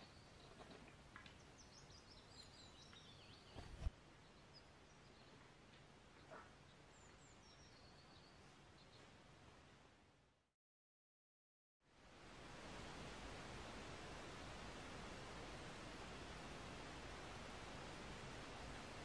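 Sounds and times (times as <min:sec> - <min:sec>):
small birds chirping: 0:00.0 - 0:09.2
background hiss: 0:00.0 - 0:10.2, 0:11.9 - 0:19.0.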